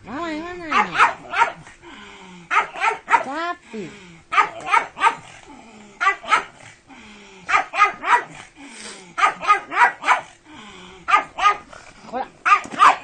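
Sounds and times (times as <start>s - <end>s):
dog barking: 0.7s - 1.6s, 2.5s - 3.3s, 4.3s - 5.3s, 6.0s - 6.6s, 7.5s - 8.4s, 9.2s - 10.4s, 11.1s - 11.7s, 12.4s - 13.0s.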